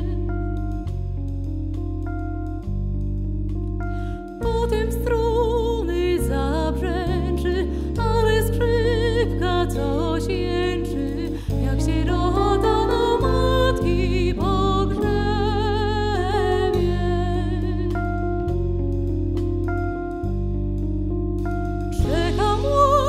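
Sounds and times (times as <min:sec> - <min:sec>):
electric bass guitar: 0:00.0 - 0:23.0
keyboard piano sound: 0:00.0 - 0:23.0
woman singing with vibrato: 0:04.5 - 0:17.9, 0:22.0 - 0:23.0.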